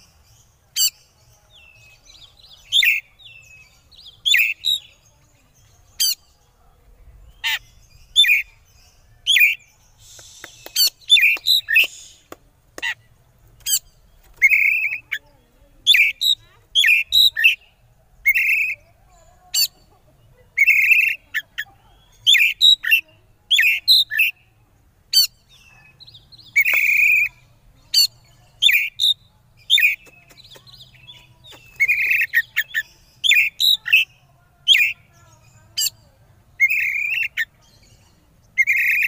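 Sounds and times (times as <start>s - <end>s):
bird singing whistled and harsh notes: 7.3s - 12.3s, 13.6s - 15.2s, 15.8s - 18.8s, 25.1s - 35.0s, 36.6s - 39.0s.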